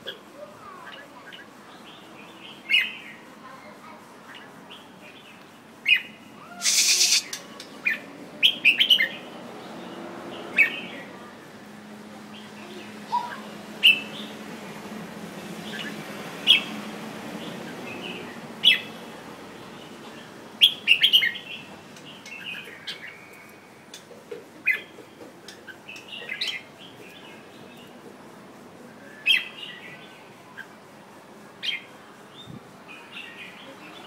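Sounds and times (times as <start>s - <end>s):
bird chirping: 5.8s - 9.2s.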